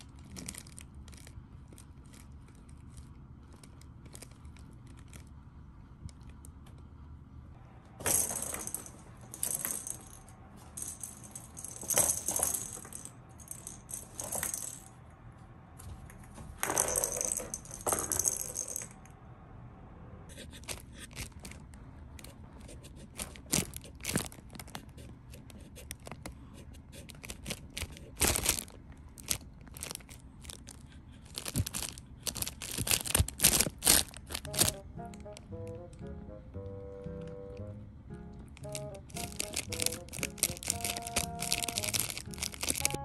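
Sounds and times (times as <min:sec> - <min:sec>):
plastic balls rattling in toy track: 0:00.0 - 0:05.3, 0:08.0 - 0:15.0, 0:16.6 - 0:19.0, 0:27.1 - 0:34.8, 0:38.6 - 0:43.0
crinkly tunnel crackling rustles: 0:00.0 - 0:05.5, 0:27.0 - 0:35.4, 0:38.6 - 0:43.0.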